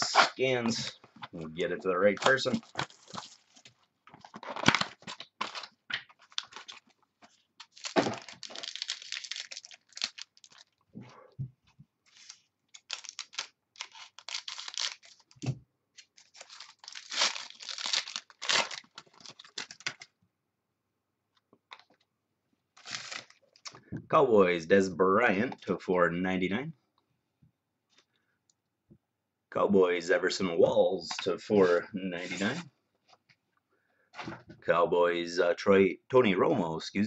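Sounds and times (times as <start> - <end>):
packaging torn and crinkled: 2.2 - 7.0, 7.6 - 10.8, 12.1 - 15.4, 16.0 - 20.1, 22.8 - 23.7.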